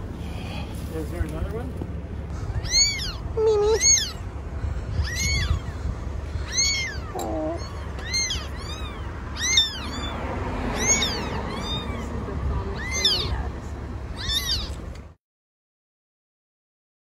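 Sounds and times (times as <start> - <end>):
kitten meowing: 2.4 - 13.5, 14.1 - 14.8.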